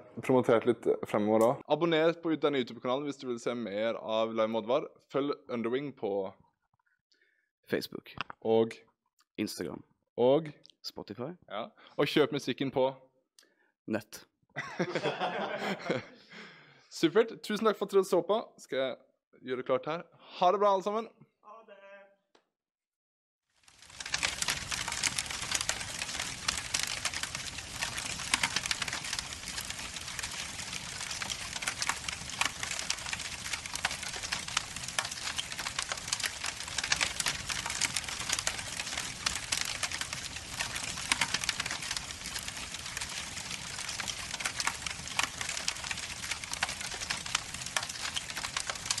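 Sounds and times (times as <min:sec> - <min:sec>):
fire crackling and popping: 0:23.6 - 0:49.0.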